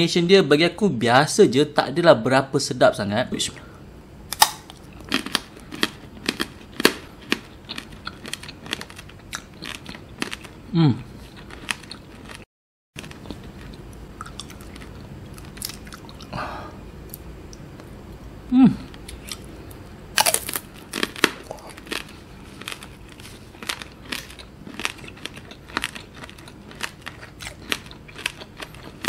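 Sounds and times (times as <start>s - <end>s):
candied fruit crunching: 4.3s - 12.4s, 13.0s - 16.4s, 18.7s - 29.0s
person humming: 10.7s - 11.1s, 18.5s - 19.0s.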